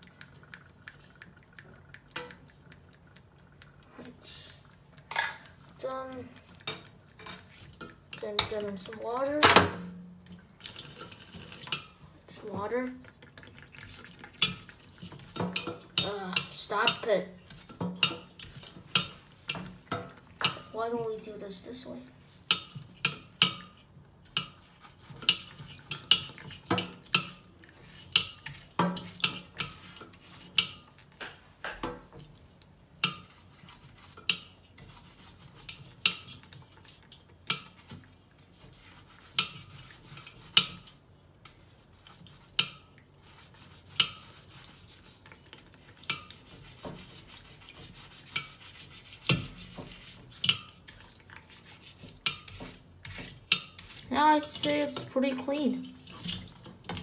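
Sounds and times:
brush scrubbing crab shell: 10.9 - 19.8, 20.4 - 31.1, 33.0 - 57.0.

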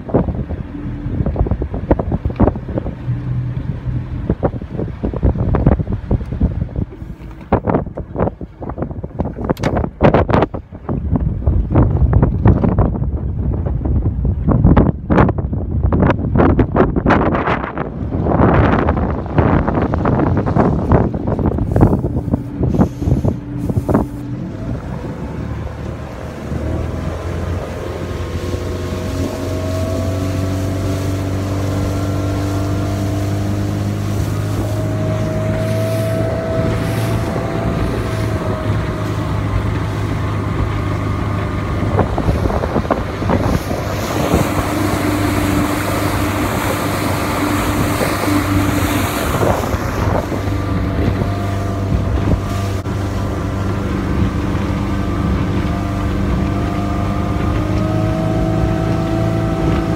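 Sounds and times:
motorboat engine running: 0.0 - 59.9
water rushing along hull: 0.0 - 59.9
wind buffeting microphone: 0.0 - 59.9
water slaps: 18.9 - 59.9.

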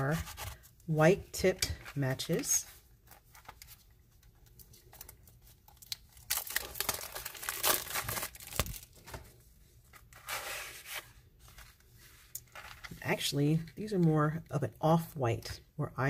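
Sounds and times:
cellophane wrap tearing and crinkling: 4.6 - 9.1.

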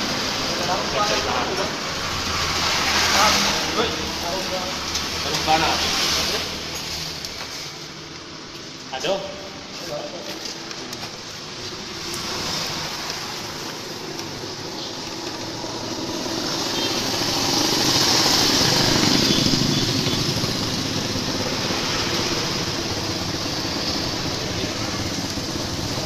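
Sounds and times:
motorcycle engine running: 15.2 - 26.0.

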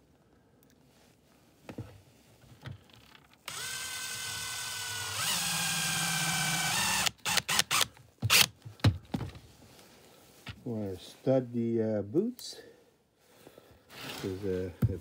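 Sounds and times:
drill trigger blips: 3.5 - 8.5
power drill running: 3.5 - 8.5.

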